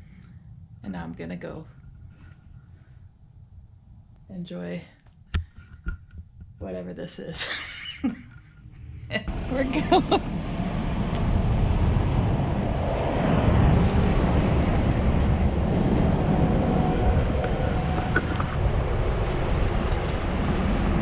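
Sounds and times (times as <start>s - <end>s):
wind rumble on microphone: 8.2s - 21.0s
car road noise: 9.2s - 21.0s.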